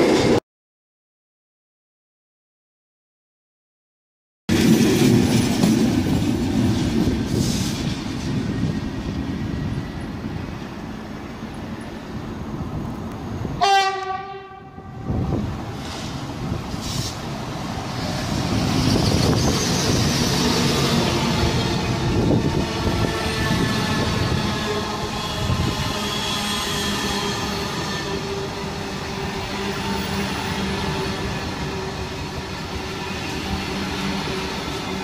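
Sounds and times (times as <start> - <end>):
another train approaching: 0.0 - 0.4, 4.5 - 35.0
train wheels rumbling on rails: 4.5 - 35.0
train horn: 13.6 - 15.4, 21.8 - 32.4.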